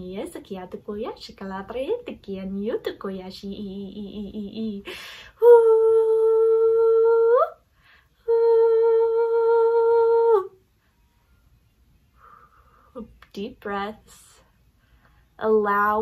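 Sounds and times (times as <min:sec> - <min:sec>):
woman breathing in: 0:04.8 - 0:05.4, 0:07.7 - 0:08.2
woman humming long notes: 0:05.4 - 0:07.6, 0:08.2 - 0:10.6.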